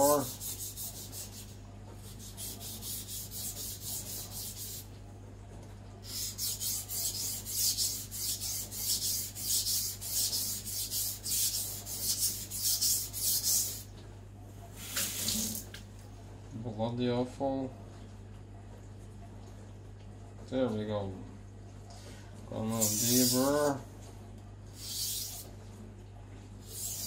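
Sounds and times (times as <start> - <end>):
knife rasping on whetstone: 0.0 - 4.9, 6.1 - 13.8, 24.8 - 25.4, 26.7 - 27.0.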